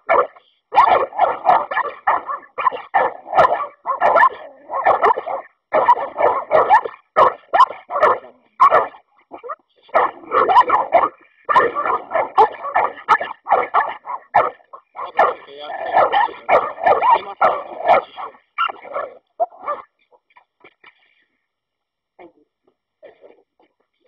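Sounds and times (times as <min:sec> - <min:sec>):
dogs barking fast: 0:00.0 - 0:20.0.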